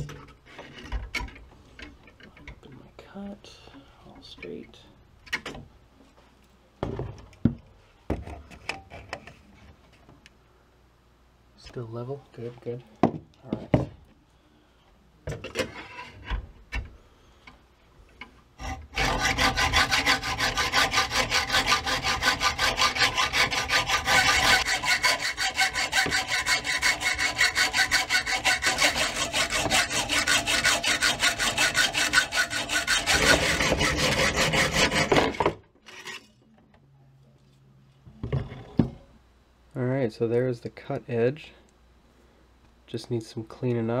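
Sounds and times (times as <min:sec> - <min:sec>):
hacksaw cutting steel: 0:18.6 - 0:36.3.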